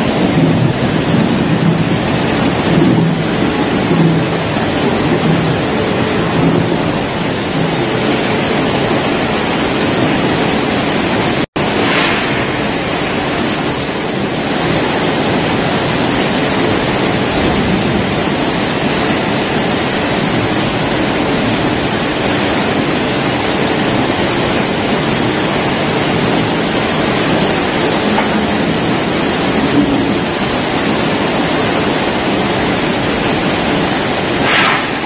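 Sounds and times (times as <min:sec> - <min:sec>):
processing machine rushing hiss: 0:06.0 - 0:15.4, 0:34.0 - 0:35.0.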